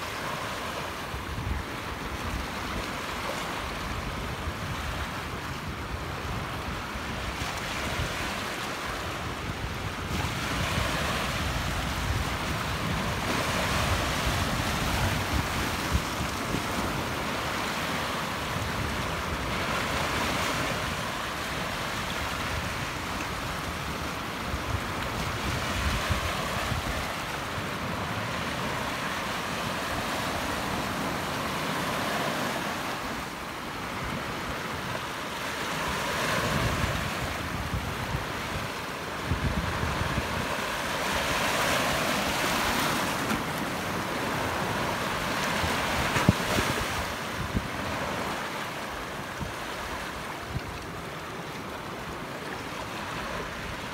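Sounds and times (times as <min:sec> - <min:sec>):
waves washing over rock: 0:05.2 - 0:53.9
wind buffeting microphone: 0:36.4 - 0:41.7.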